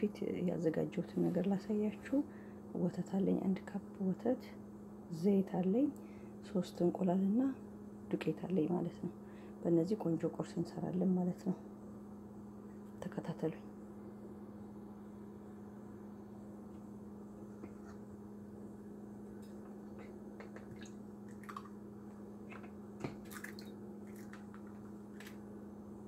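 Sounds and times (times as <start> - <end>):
steady low hum: 0.0 - 26.0
wet squishy drips: 20.4 - 21.8, 23.1 - 24.8.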